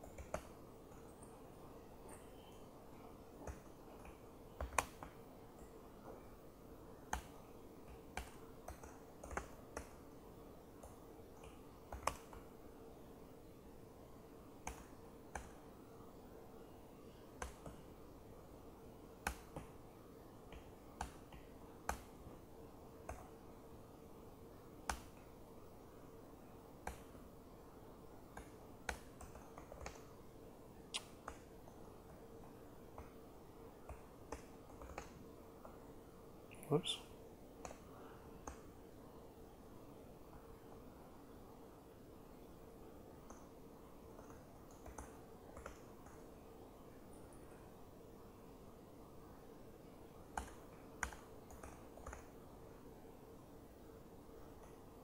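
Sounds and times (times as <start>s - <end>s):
laptop keystrokes: 0.0s - 1.4s, 3.4s - 5.2s, 7.0s - 10.1s, 10.8s - 12.5s, 14.6s - 15.7s, 17.3s - 17.9s, 19.2s - 19.8s, 20.5s - 22.2s, 23.0s - 23.3s, 24.8s - 25.3s, 26.8s - 27.2s, 28.3s - 30.2s, 33.8s - 35.8s, 37.6s - 37.8s, 38.4s - 38.7s, 43.2s - 43.5s, 44.1s - 46.3s, 50.3s - 52.4s
faint steady hum: 0.0s - 55.0s.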